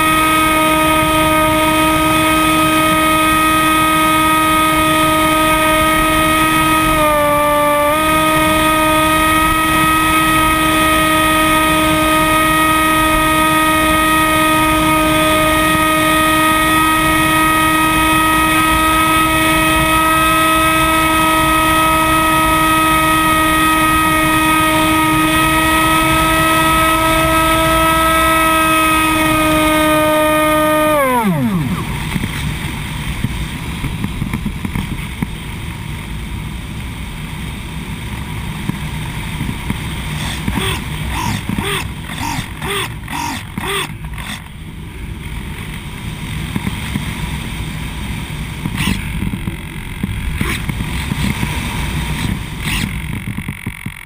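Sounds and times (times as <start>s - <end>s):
electric motor and propeller whine: 0.0s - 54.0s.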